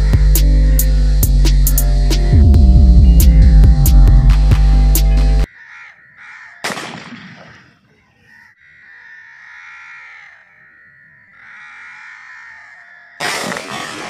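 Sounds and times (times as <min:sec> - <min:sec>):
shotgun shot: 0:06.6 - 0:07.6, 0:13.2 - 0:14.0.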